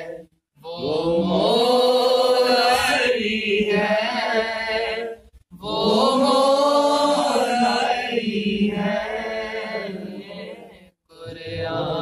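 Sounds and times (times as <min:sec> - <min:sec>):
man chanting: 0:11.1 - 0:12.0.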